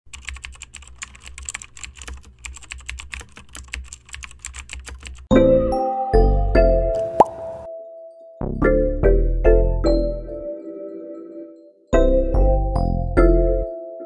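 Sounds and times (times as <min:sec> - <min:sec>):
keyboard typing clicks: 0:00.1 - 0:05.3.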